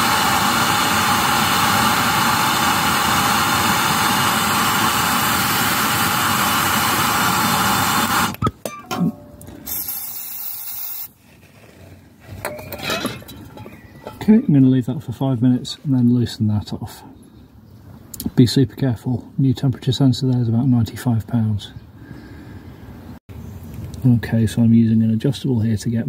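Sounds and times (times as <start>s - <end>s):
blowtorch flame roaring: 0.0s - 8.4s
aerosol spray hiss: 9.7s - 11.2s.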